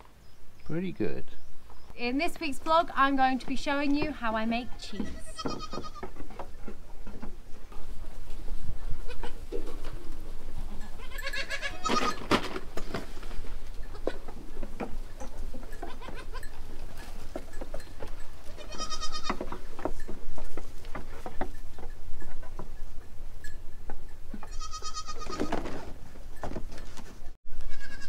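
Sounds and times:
goats bleating: 0:04.7 - 0:06.2, 0:10.8 - 0:12.3, 0:15.7 - 0:17.0, 0:18.4 - 0:19.5, 0:24.4 - 0:25.6, 0:27.6 - 0:28.0.

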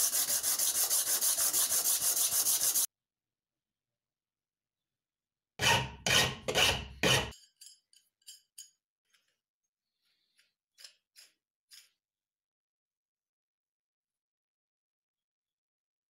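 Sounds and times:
file rasping on steel: 0:00.0 - 0:02.9, 0:05.6 - 0:07.4.

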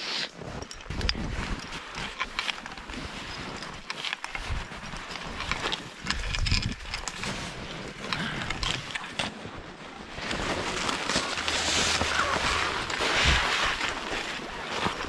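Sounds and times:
wind gusting over microphone: 0:11.4 - 0:13.8.

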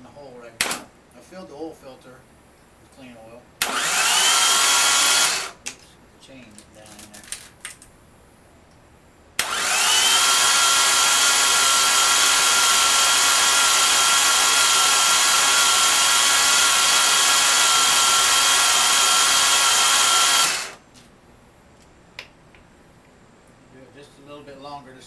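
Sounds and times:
starter motor cranking: 0:03.6 - 0:05.6, 0:09.4 - 0:20.8.

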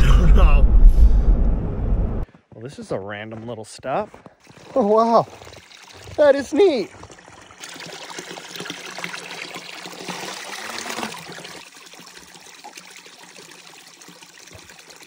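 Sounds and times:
water filling plastic bottle: 0:04.4 - 0:15.0
water trickling into pool: 0:04.4 - 0:15.0.

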